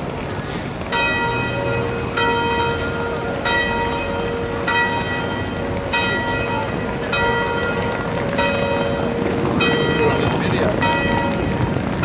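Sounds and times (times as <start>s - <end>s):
church bell tolling: 0.5s - 12.0s.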